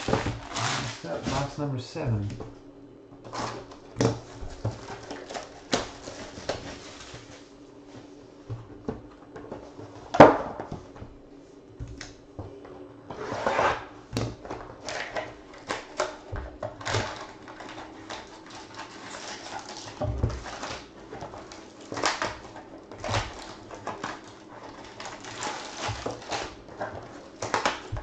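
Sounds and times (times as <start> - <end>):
plastic wrap crinkling: 0.0 - 1.6, 3.3 - 7.5, 14.8 - 28.0.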